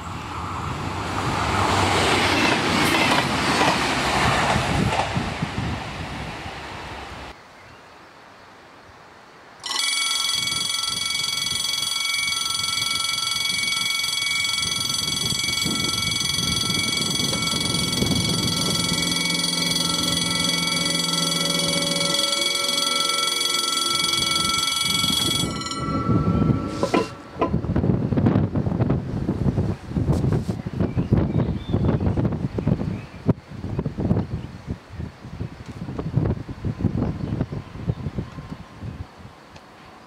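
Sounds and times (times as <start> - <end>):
passing train: 0.0 - 7.4, 9.6 - 40.0
loud steady alarm tone: 9.6 - 27.3.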